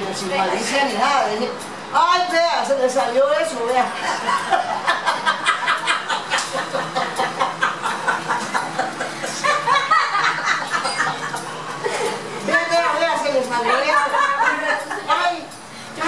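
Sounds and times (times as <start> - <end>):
women laughing hard: 4.0 - 12.3, 13.9 - 15.1.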